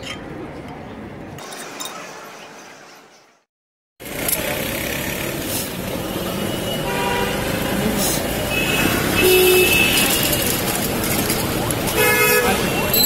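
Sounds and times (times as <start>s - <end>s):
street traffic: 0.0s - 13.0s
vehicle horns: 6.3s - 7.8s, 8.4s - 10.6s, 11.9s - 13.0s.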